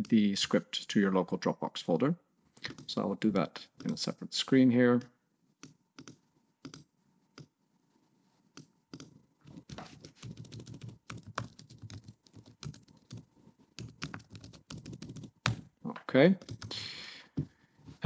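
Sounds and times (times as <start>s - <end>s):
typing on computer keyboard: 8.9s - 15.7s, 16.4s - 16.7s.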